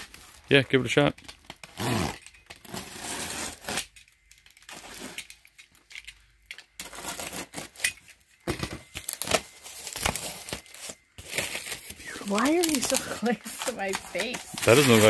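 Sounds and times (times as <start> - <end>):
knife slicing tape and cardboard: 1.8 - 3.9.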